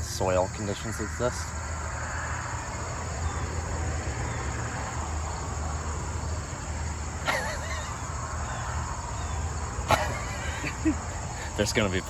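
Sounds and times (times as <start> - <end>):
passing traffic: 0.0 - 12.0.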